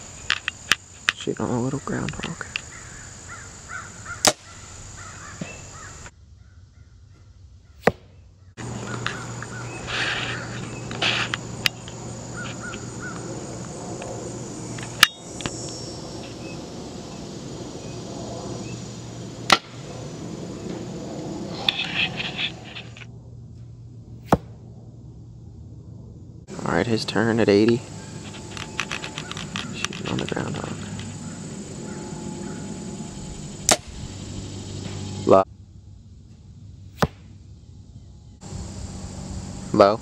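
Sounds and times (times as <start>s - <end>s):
insects humming: 0.0s - 40.0s
short bird calls: 1.8s - 11.4s, 12.3s - 13.3s, 27.8s - 34.3s
bow string snapping: 33.7s - 33.9s.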